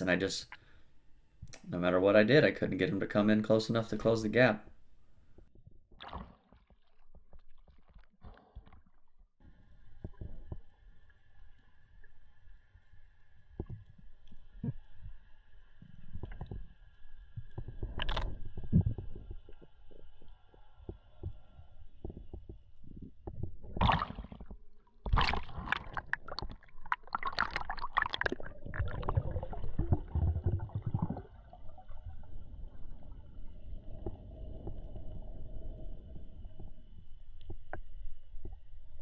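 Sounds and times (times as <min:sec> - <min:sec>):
water bubbling and splashing: 0:05.9 - 0:09.1, 0:22.8 - 0:36.8.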